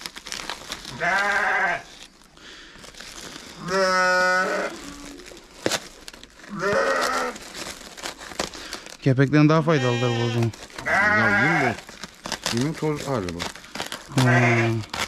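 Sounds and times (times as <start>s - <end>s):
sheep bleating: 0.9s - 1.9s, 3.6s - 4.9s, 6.5s - 7.4s, 9.6s - 11.8s, 14.1s - 14.9s.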